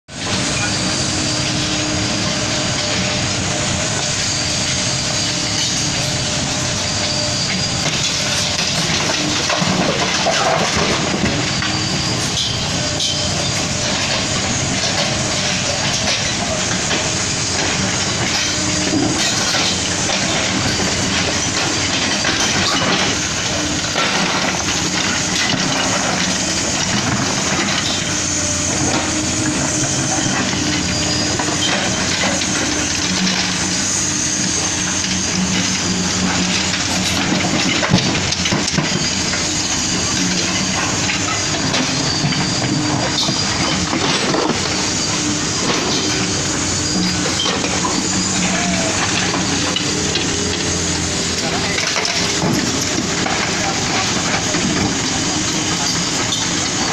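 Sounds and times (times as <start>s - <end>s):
excavator diesel engine: 0.1s - 56.9s
hydraulic hum: 0.1s - 56.9s.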